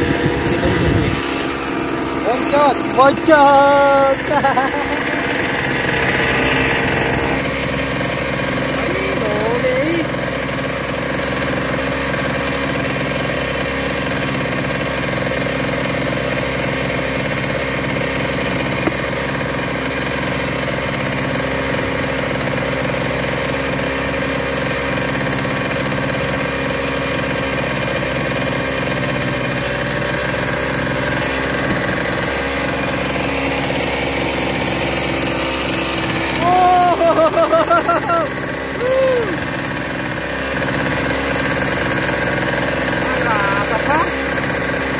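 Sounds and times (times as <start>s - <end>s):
boat engine droning: 0.0s - 44.9s.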